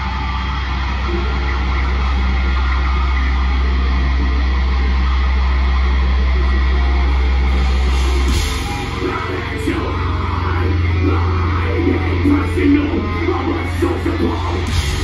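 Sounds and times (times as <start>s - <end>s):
low bass drone: 0.0s - 15.0s
metal band playing heavy riff: 0.0s - 15.0s.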